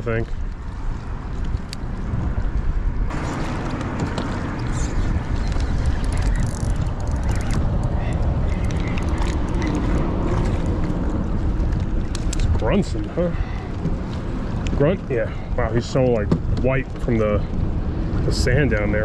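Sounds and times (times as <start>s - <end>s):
rushing water: 0.0s - 19.0s
wind buffeting microphone: 0.0s - 19.0s
gear clicking and knocking: 3.1s - 12.6s.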